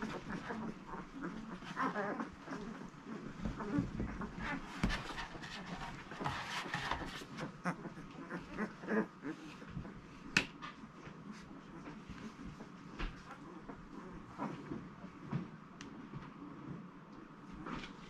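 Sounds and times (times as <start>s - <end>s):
puppies squeaking and whimpering: 0.0s - 10.0s
rustling: 0.0s - 16.7s.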